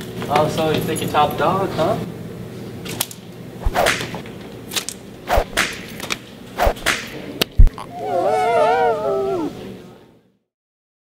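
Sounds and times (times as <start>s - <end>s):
sharp slaps: 3.6s - 4.2s, 5.3s - 7.7s.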